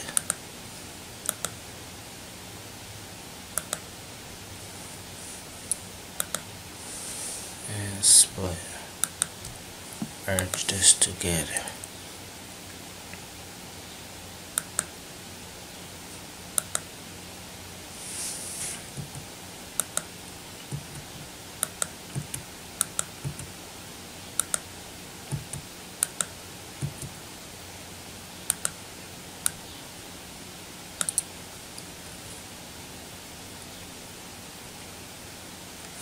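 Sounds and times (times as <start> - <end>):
steady hiss: 0.0 - 36.0
computer mouse clicks: 0.1 - 0.4, 1.2 - 1.6, 3.6 - 3.8, 5.7 - 6.5, 9.0 - 9.4, 14.6 - 14.9, 16.6 - 16.9, 18.9 - 20.1, 20.7 - 23.5, 24.4 - 24.7, 25.3 - 27.2, 28.5 - 28.8, 31.0 - 31.9
short rustle: 17.9 - 19.0.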